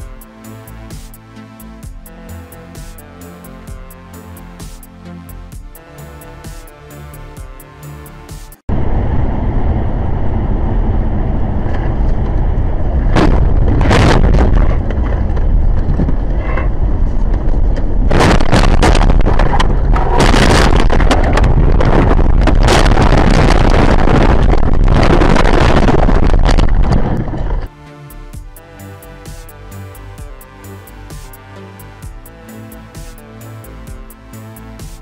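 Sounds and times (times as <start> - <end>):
road and engine rumble: 7.9 - 33.9
rough rushing noise: 8.7 - 27.7
thumps: 13.1 - 27.7.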